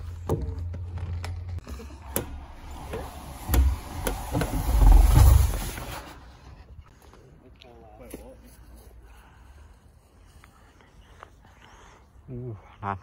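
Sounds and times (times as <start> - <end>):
person sliding down tube slide: 2.4 - 6.5.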